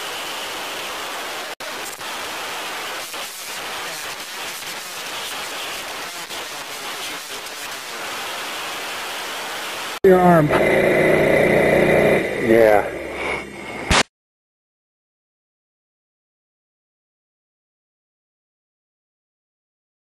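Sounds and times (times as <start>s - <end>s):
steady rushing hiss: 0.0s - 10.3s.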